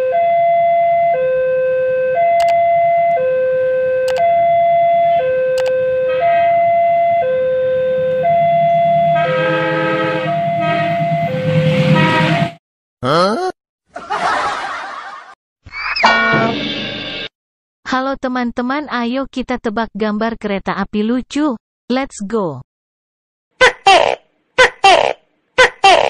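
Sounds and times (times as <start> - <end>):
level crossing alarm two tones: 0.0 - 12.5
locomotive horn: 6.0 - 6.7, 7.6 - 12.6, 16.0 - 16.6.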